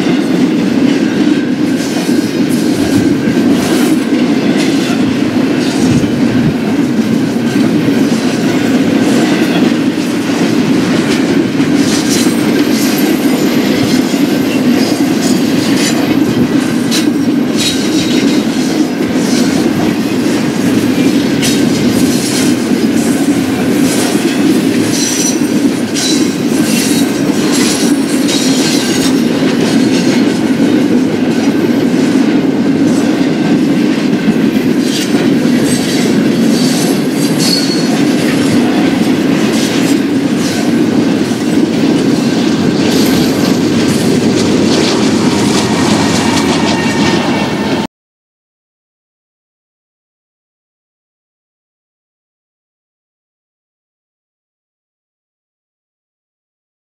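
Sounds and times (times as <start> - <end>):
freight train cars rumbling: 0.0 - 47.9
wheels clacking over rail joints: 0.0 - 47.9
faint high wheel squeal: 37.4 - 37.9.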